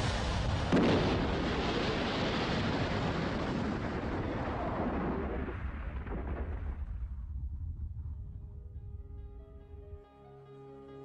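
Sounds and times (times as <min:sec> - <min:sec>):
jetliner crash explosion: 0:00.0 - 0:07.1.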